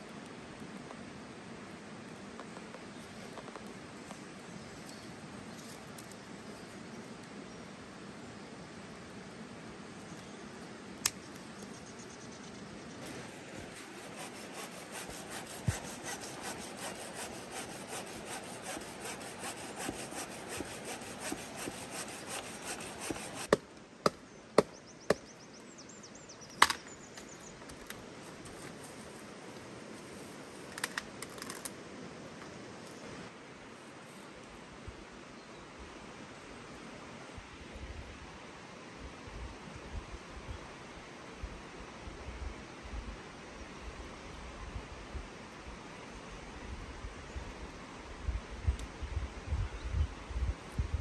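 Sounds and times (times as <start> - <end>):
hand saw cutting a branch: 13.0 - 23.6.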